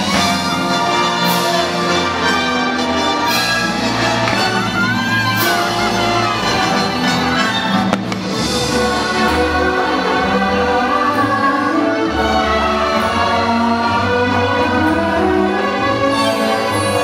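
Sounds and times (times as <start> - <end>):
choir singing: 0.0 - 17.0
orchestral music: 0.0 - 17.0
firework bang: 7.8 - 8.7.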